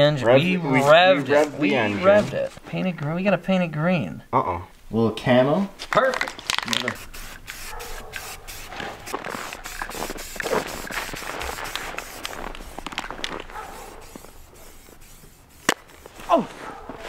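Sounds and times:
clicks and scuffs: 5.8s - 17.0s
spray can hissing: 6.2s - 16.4s.

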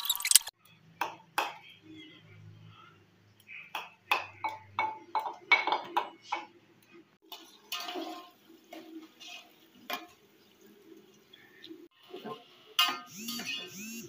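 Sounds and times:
kitchenware clinking: 3.8s - 6.5s, 7.2s - 10.4s
spoon stirring onions in pot: 7.2s - 11.0s.

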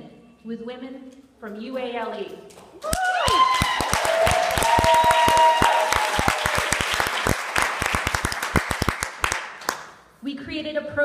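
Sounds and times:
voices whooping: 2.8s - 6.9s
audience applauding: 2.8s - 9.9s.

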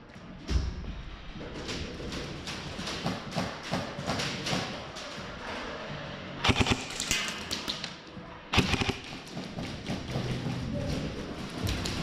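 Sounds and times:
airsoft guns firing bursts: 6.4s - 7.2s, 8.6s - 9.9s.

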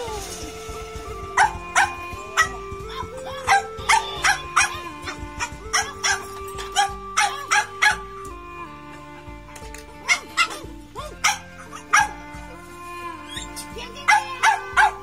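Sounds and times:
background music with held notes: 0.0s - 15.0s
dog barking: 1.4s - 2.5s, 3.5s - 8.0s, 10.1s - 12.2s, 14.1s - 15.0s.

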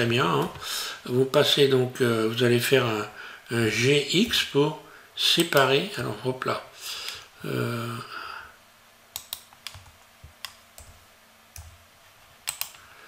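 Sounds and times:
computer mouse clicking: 9.1s - 11.0s, 12.4s - 12.8s
computer keyboard keys clicking: 9.2s - 11.0s, 12.5s - 12.8s.

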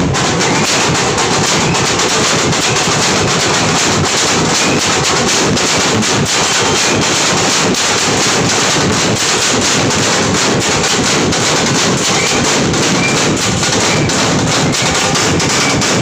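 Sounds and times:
steel drums beaten with sticks: 0.0s - 16.0s.

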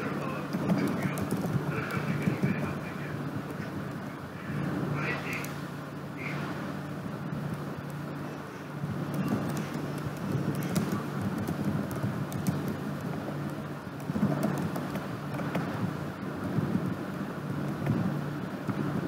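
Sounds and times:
low hum: 0.0s - 19.0s
keyboard keys typing: 9.0s - 15.7s.

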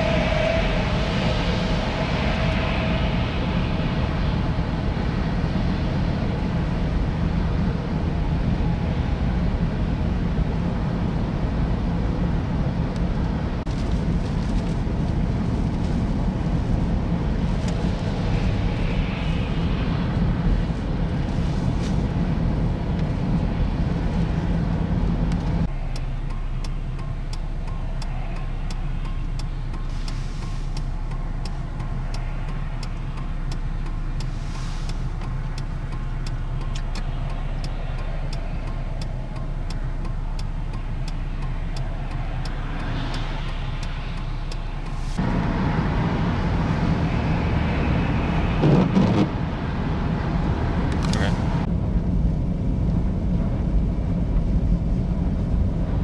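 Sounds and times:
car engine rumble: 0.0s - 56.0s
low hum: 0.0s - 56.0s
tyres on wet snowy road: 0.0s - 56.0s
faint ticking: 25.3s - 45.0s.

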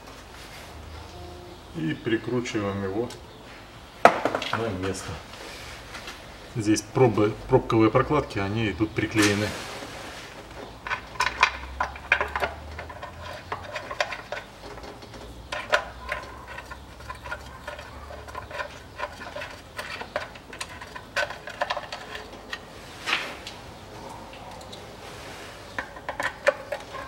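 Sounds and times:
faint low hum: 0.0s - 27.0s.

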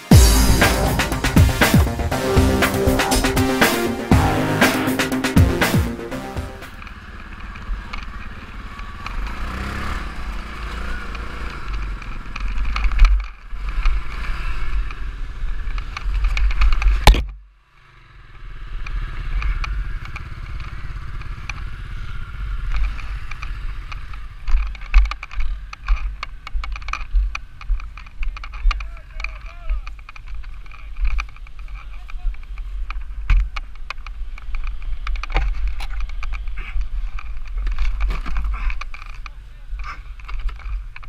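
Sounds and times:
quad engine running: 0.0s - 12.5s.

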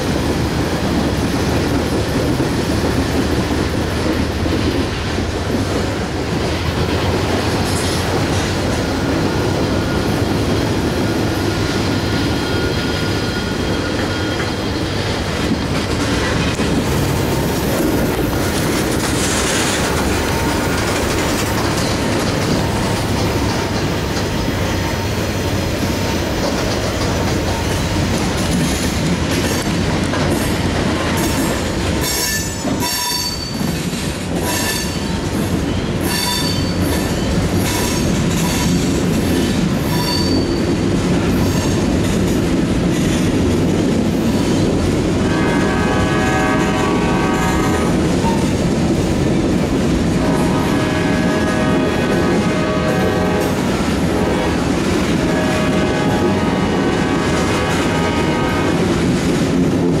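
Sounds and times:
freight train rumbling past: 0.0s - 60.0s
wheels clicking over rail joints: 13.1s - 45.2s.

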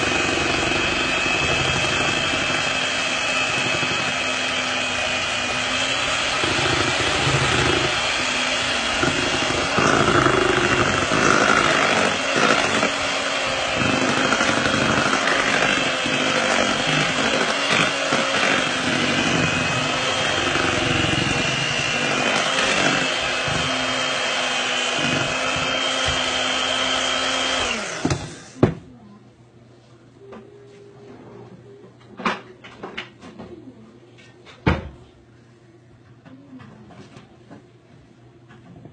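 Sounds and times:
electric hand mixer running: 0.0s - 28.6s.

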